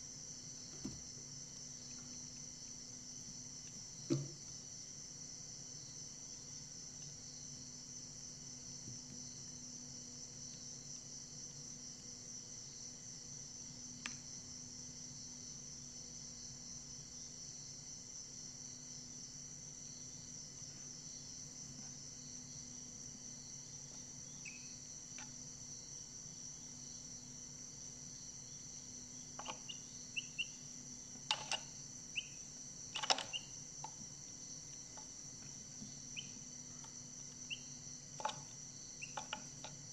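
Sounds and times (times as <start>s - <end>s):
high insect chorus: 0.0s - 39.9s
chicks peeping: 29.4s - 30.6s, 39.0s - 39.3s.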